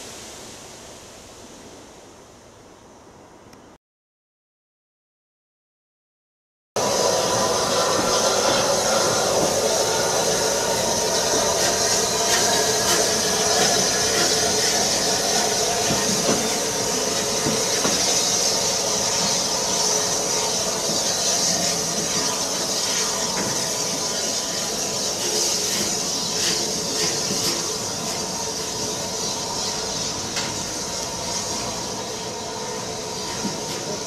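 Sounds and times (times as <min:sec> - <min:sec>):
steam locomotive hissing: 0:00.0 - 0:02.6, 0:06.8 - 0:34.0
train wheels squealing: 0:06.8 - 0:34.0.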